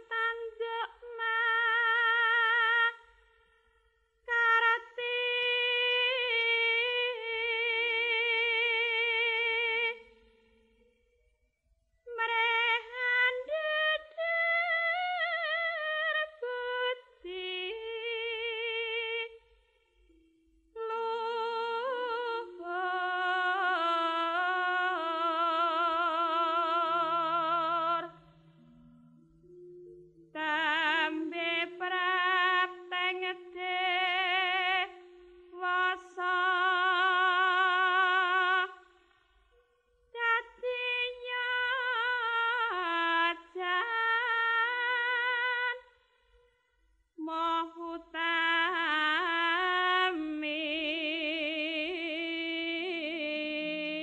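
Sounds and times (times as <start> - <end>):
ornamented vocal singing: 20.8 - 29.3, 30.3 - 38.9, 40.2 - 45.9
low sustained note: 24.3 - 38.3.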